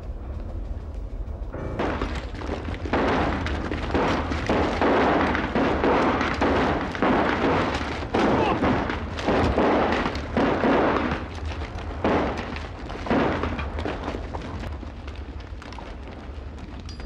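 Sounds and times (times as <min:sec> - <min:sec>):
low rumble: 0:00.0 - 0:17.0
loud explosions: 0:01.4 - 0:16.7
gunshots: 0:01.6 - 0:14.7.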